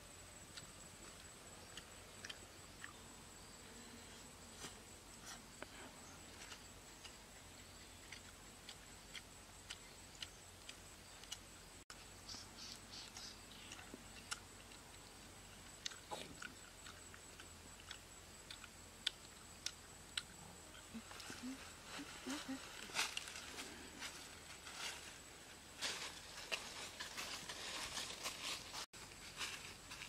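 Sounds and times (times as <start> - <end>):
chewing and lip-smacking: 0.5 - 3.0, 7.8 - 11.5, 13.1 - 15.1, 15.7 - 21.0.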